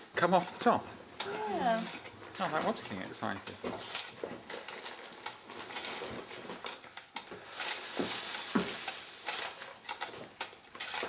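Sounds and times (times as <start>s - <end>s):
metal sheet crinkly rustle: 1.6s - 11.0s
mechanism clicks and rattles: 8.9s - 11.0s.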